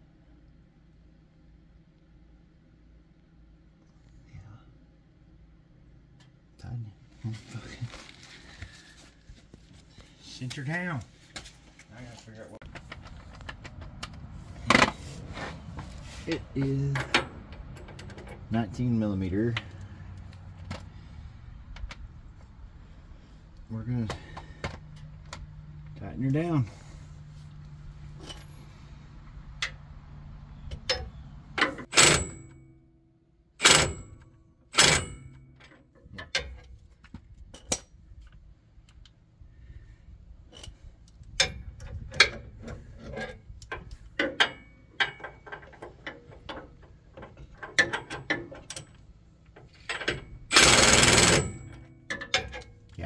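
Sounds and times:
ratchet wrench clicking: 50.5s - 51.8s.

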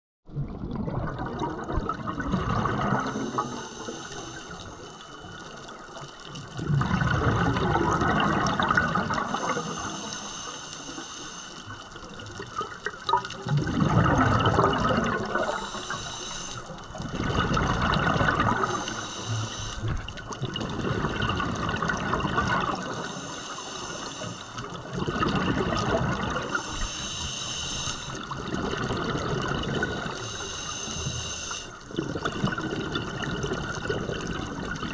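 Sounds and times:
exhaled bubbles rushing: 0.3s - 10.0s, 11.9s - 23.1s, 24.6s - 26.8s, 28.2s - 30.3s, 31.8s - 34.9s
hissing regulator inhale: 3.0s - 5.2s, 9.2s - 12.0s, 15.2s - 17.0s, 18.4s - 20.1s, 22.7s - 24.8s, 26.4s - 28.4s, 30.0s - 31.9s.

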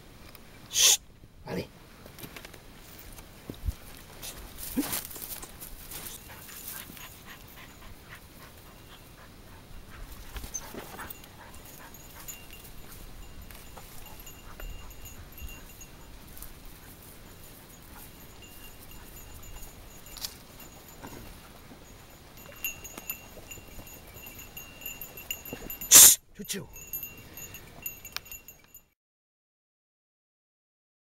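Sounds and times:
dogs barking and whining: 6.1s - 26.0s.

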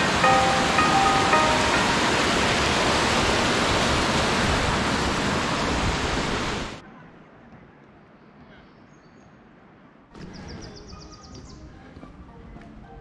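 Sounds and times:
fast-flowing water rushing: 0.0s - 6.8s
faint bird chirp: 10.2s - 11.7s.

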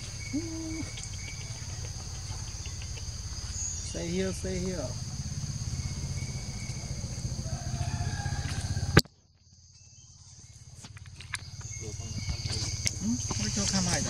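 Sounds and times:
faint ticks: 0.3s - 3.3s.

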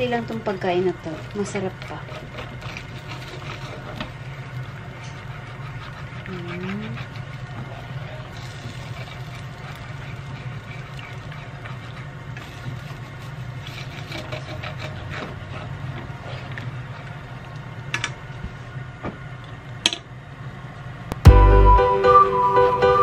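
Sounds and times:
chopsticks stirring egg in pan: 0.0s - 17.8s.

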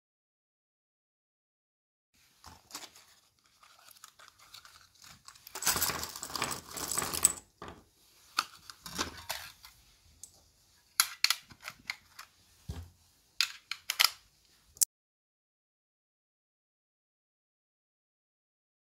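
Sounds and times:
cartridges rattling onto wooden bench: 5.5s - 7.8s
metallic clicks of loading magazine: 11.0s - 12.0s, 13.4s - 14.2s.

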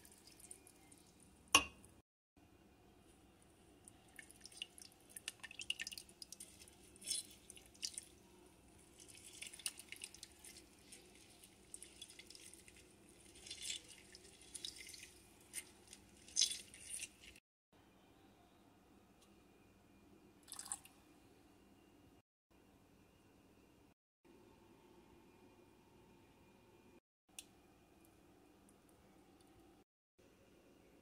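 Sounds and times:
juice squirting and dripping: 3.7s - 17.4s.

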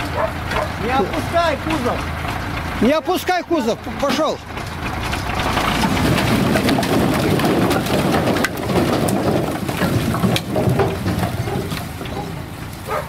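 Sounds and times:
logs tumbling onto a pile: 4.1s - 13.0s.

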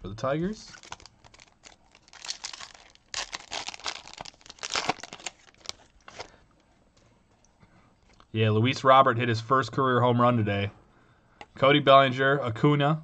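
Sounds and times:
foil wrapper crinkling: 0.7s - 6.4s.

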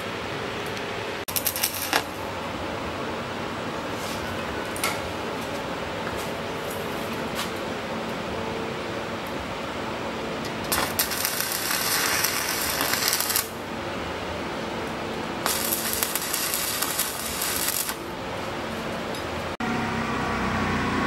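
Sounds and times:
arc welder crackling and hissing: 1.3s - 2.4s, 10.6s - 13.8s, 14.8s - 19.1s.

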